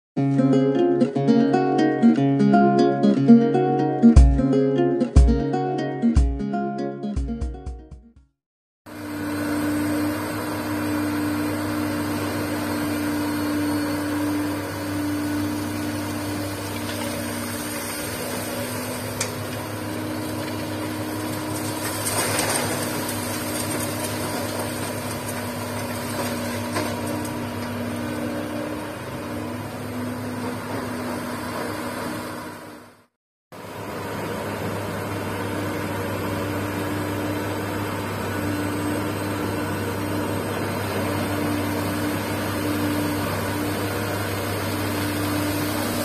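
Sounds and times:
excavator engine and hydraulics: 0:08.9 - 0:46.0
gravel dropped into truck bed: 0:21.3 - 0:27.4.

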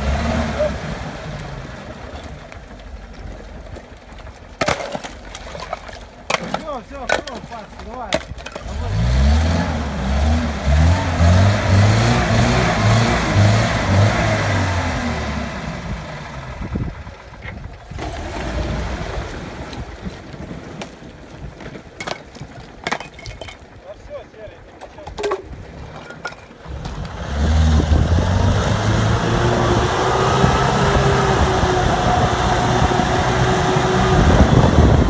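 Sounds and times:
engine revving hard: 0:00.0 - 0:02.0, 0:08.6 - 0:16.9, 0:17.9 - 0:19.7, 0:26.7 - 0:35.0
wheels spinning in icy water: 0:00.0 - 0:14.0, 0:15.1 - 0:35.0
ice slabs knocking: 0:02.2 - 0:09.0, 0:19.8 - 0:23.8, 0:24.8 - 0:27.0.

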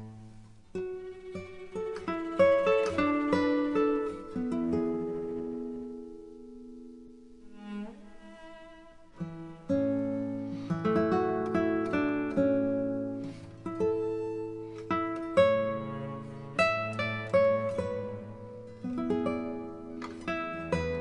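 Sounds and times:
acoustic guitar picking: 0:00.0 - 0:21.0.

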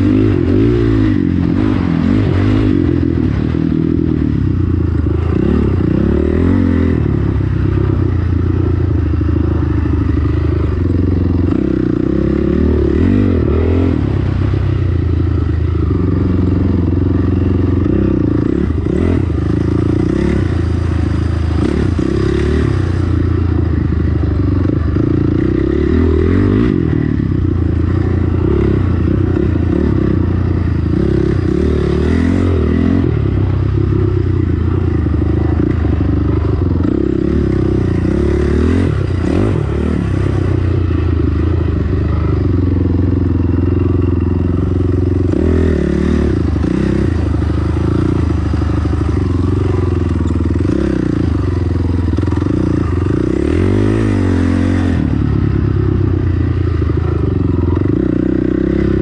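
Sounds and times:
dirt bike engine revving: 0:00.0 - 0:14.6, 0:15.2 - 0:59.0.

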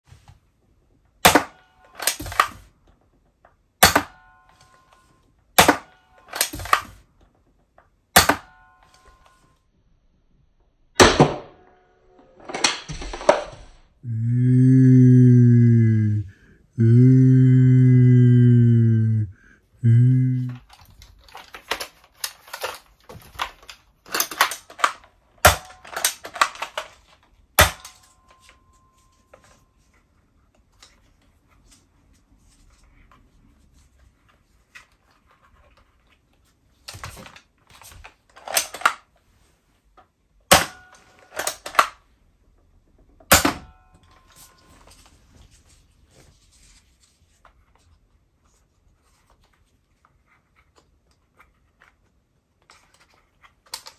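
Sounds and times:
toy blaster plastic clacks: 0:20.6 - 0:27.0.

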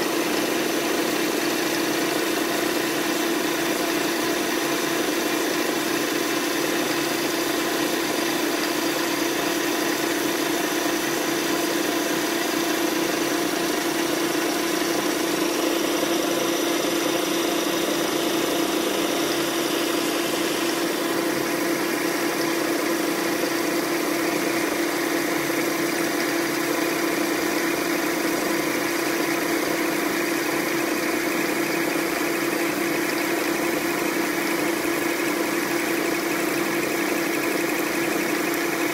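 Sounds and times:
metal lathe humming and whining: 0:00.0 - 0:38.9.

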